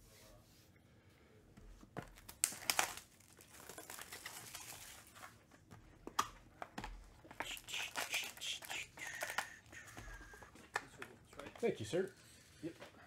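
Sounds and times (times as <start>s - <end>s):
packaging crinkling: 2.0s - 5.5s, 7.3s - 10.5s.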